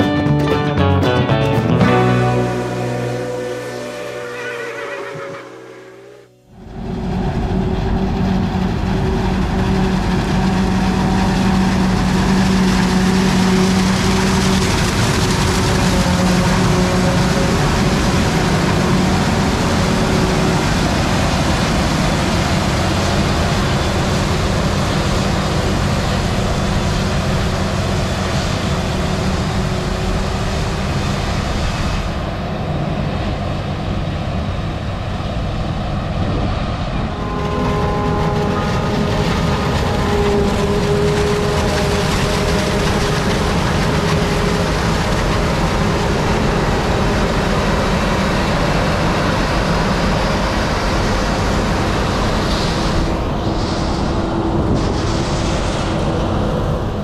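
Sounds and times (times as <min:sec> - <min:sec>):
harvester engine drone: 0:00.0 - 0:57.0
chopped crop rushing: 0:06.8 - 0:32.2, 0:37.0 - 0:56.5.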